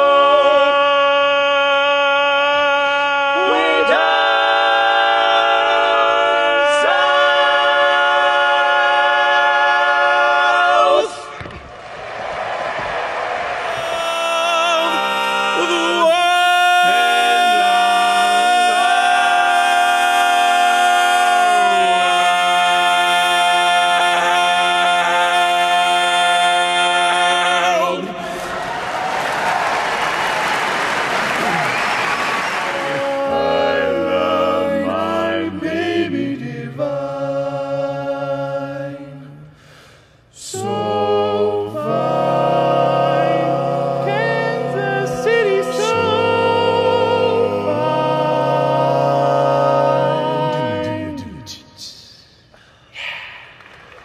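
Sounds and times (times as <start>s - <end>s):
men singing in close harmony: 0.0s - 11.4s, 13.7s - 28.4s, 32.8s - 39.5s, 40.4s - 51.6s
audience applause: 11.7s - 15.1s, 28.3s - 33.3s, 53.4s - 54.0s.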